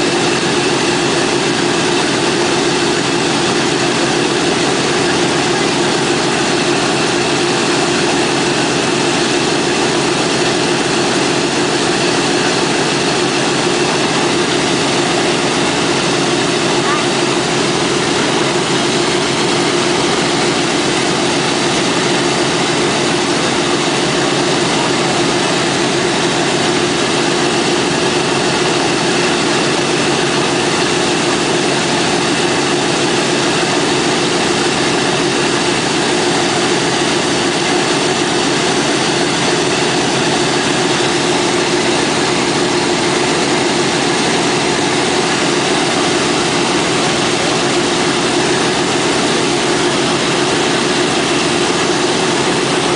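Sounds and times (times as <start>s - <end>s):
radial aircraft engines idling: 0.0s - 52.9s.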